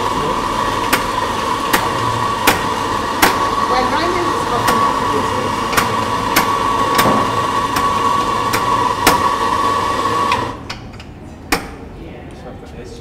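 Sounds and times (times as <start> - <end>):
coffee grinder whining: 0.0 - 10.7.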